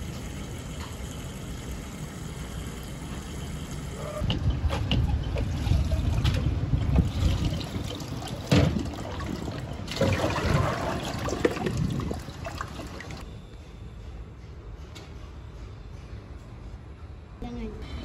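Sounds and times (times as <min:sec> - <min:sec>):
water trickling in a sink: 0:07.0 - 0:13.2.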